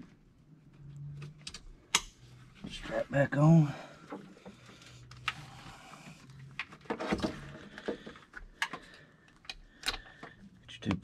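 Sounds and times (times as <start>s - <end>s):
battery terminals clicking and knocking: 6.5s - 11.0s.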